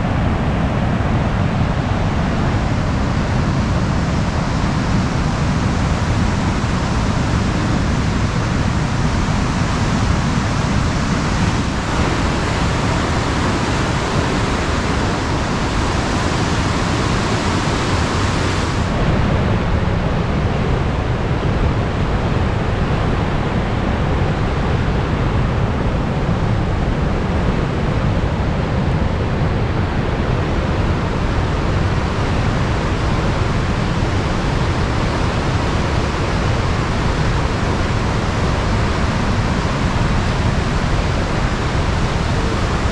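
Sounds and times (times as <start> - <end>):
waterfall rushing: 0.0 - 20.4, 29.6 - 42.9.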